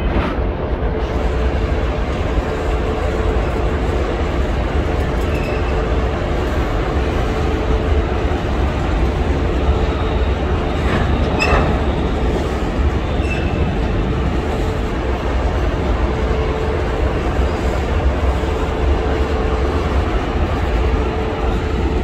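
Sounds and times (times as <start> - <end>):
train wheels rumbling on rails: 0.0 - 22.0
train wheels squealing: 5.1 - 6.6, 9.4 - 14.8.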